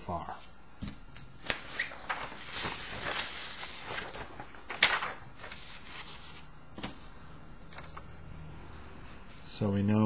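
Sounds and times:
paper crinkle: 1.4 - 7.1, 7.7 - 8.1
paper sliding and rustling: 1.4 - 7.1, 7.7 - 8.1.

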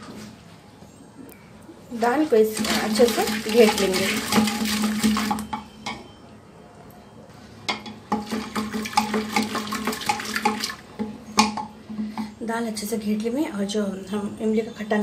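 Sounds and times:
wooden masher churning lentils: 2.0 - 5.4
wood knocking against metal pot: 7.7 - 12.4.

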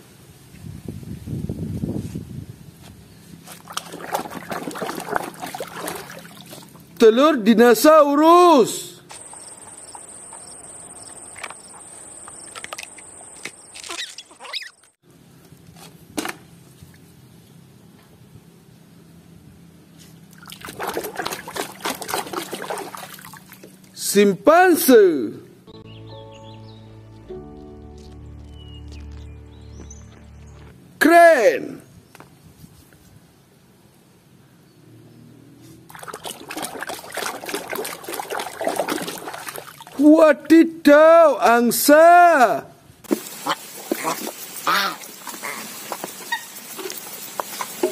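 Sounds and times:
water splashing in a tub: 3.5 - 7.0, 20.3 - 24.0, 35.9 - 40.1, 43.1 - 47.9
high insect-like chirring: 9.1 - 14.9
hatchling squeaks: 13.6 - 15.0.

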